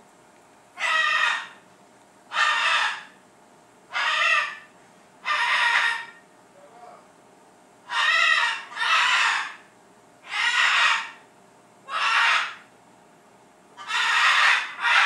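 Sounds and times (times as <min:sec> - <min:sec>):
parrot squawking: 0:00.8 - 0:01.6, 0:02.3 - 0:03.2, 0:03.9 - 0:06.2, 0:07.8 - 0:11.2, 0:11.8 - 0:12.7, 0:13.8 - 0:15.0.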